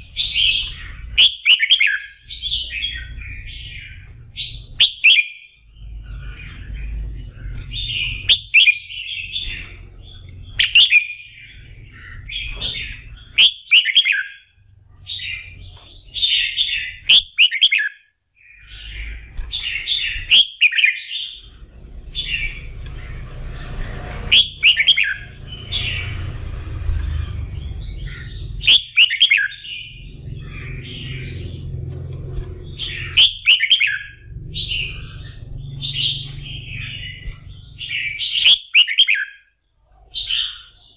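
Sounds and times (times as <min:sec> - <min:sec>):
bird chirping song: 0:00.0 - 0:40.9
low background rumble: 0:05.6 - 0:13.4, 0:21.2 - 0:38.4.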